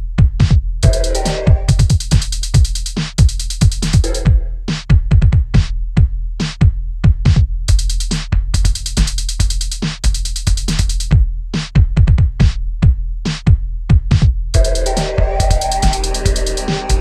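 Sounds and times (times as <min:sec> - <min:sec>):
steady low bass: 0:00.0 - 0:05.3, 0:10.4 - 0:17.0
deep kick drums: 0:00.0 - 0:17.0
hi-hat and percussion hits: 0:00.0 - 0:17.0.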